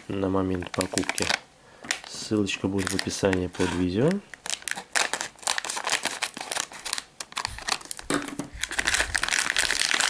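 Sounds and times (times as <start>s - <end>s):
plastic bag crinkling: 0.5s - 10.0s.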